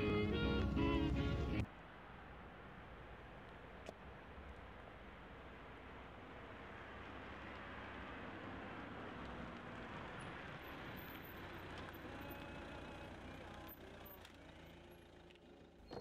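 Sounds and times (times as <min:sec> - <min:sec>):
car engine and tyre noise: 0:00.0 - 0:16.0.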